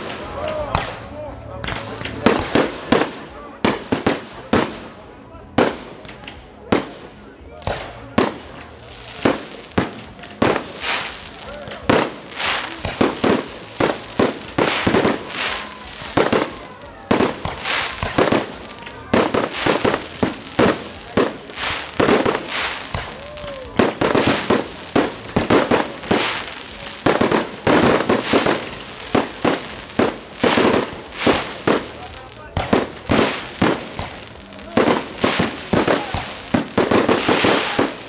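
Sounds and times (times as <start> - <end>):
fireworks bursting with sharp bangs: 0.0 - 38.0.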